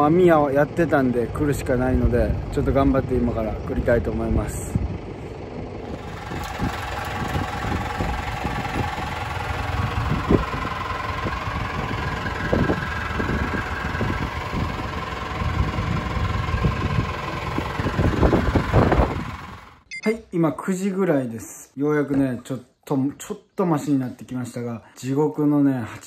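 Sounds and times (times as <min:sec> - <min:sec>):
boat engine running: 0:00.0 - 0:19.9.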